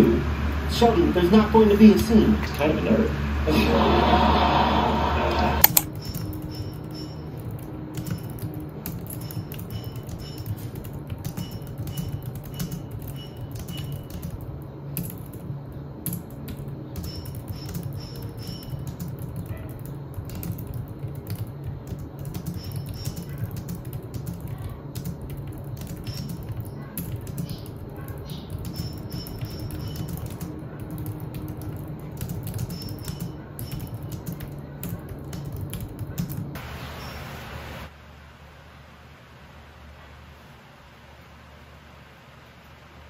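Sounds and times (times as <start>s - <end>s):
person speaking: 0.0s - 5.9s
keyboard typing: 5.3s - 36.6s.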